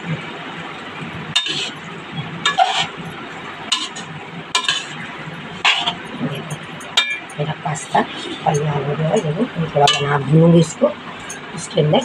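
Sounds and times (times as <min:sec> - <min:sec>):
metal spoon scraping a pan: 0:01.3 - 0:10.3.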